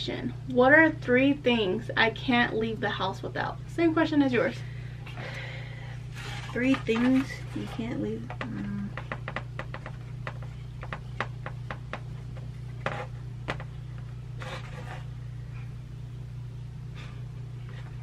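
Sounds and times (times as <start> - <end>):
low electrical hum: 0.0 - 18.0
marker scratching on whiteboard: 14.4 - 15.1.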